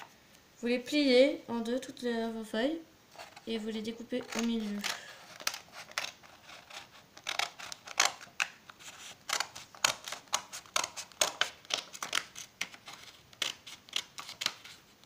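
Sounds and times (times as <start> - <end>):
scissors snipping paper: 4.1 - 8.6, 9.2 - 14.8.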